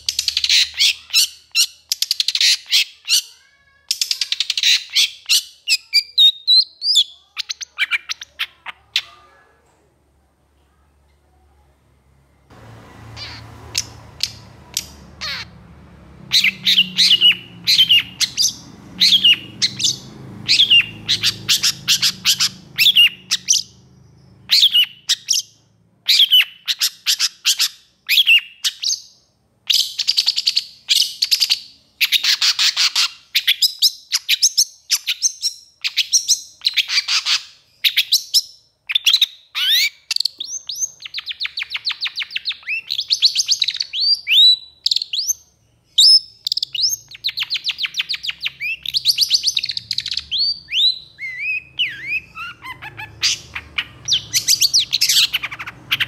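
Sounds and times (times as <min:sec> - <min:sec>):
bird harsh chattering calls: 0:13.1 - 0:15.6, 0:16.3 - 0:25.5, 0:46.0 - 0:56.0.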